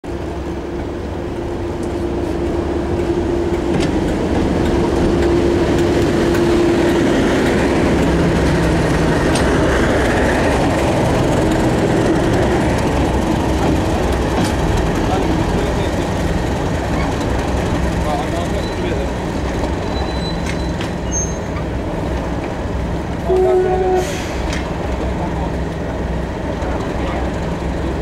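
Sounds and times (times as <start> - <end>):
diesel locomotive passing: 0.1 - 28.0.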